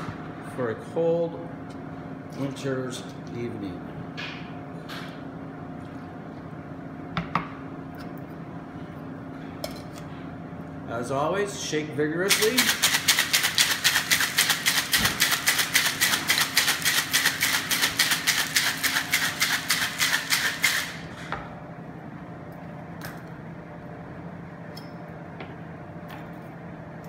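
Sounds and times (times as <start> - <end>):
ice rattling in cocktail shaker: 12.3 - 20.8.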